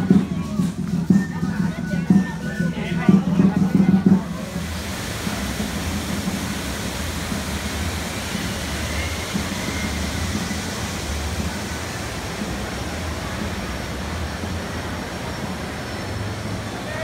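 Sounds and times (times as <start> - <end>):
rushing noise with low rumble: 3.5 - 17.0.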